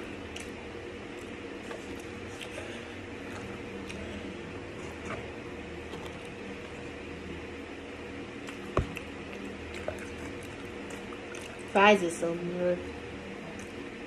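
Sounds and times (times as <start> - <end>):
eating from plastic tray: 0.0 - 7.0, 8.3 - 11.7
steady background hum: 0.0 - 14.0.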